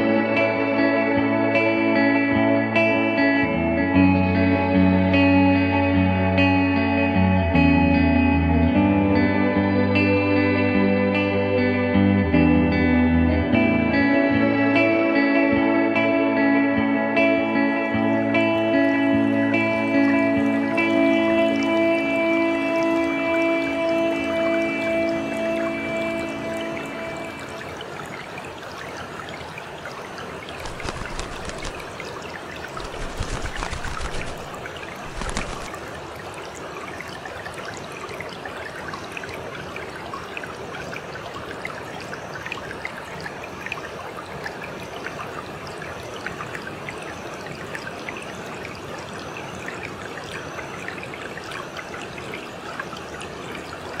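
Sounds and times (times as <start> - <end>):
river water flowing: 0.0 - 11.9, 13.6 - 54.0.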